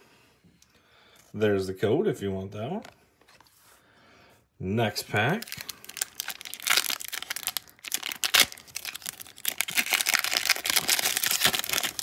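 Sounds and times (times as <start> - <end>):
foil wrapper crinkling: 5.3 - 12.0
foil ripping: 5.5 - 12.0.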